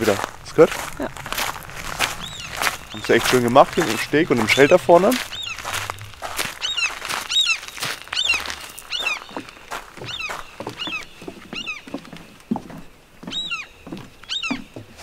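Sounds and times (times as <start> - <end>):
bird calling high-pitched: 1.9 - 12.2, 13.2 - 14.8.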